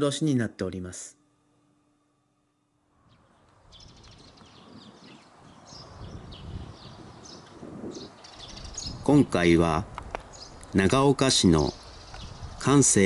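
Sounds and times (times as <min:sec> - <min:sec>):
birds chirping: 0:03.0 - 0:13.0.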